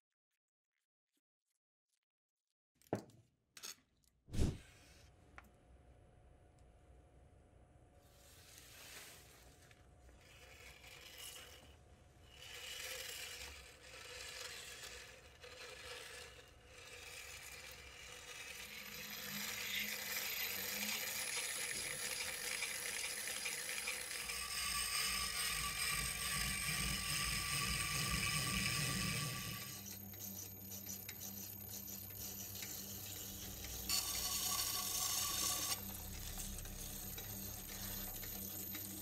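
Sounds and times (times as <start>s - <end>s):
grinding wheel motor whirring: 10.1s - 39.0s.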